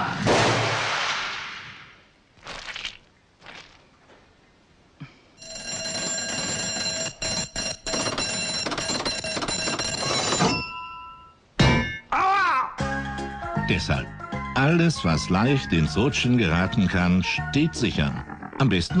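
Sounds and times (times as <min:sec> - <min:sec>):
ringing electric bell alarm: 0:05.4 - 0:11.4.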